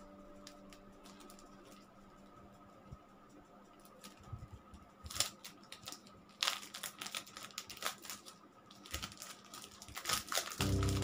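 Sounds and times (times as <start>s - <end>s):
plastic packaging crinkling: 5.0s - 11.0s.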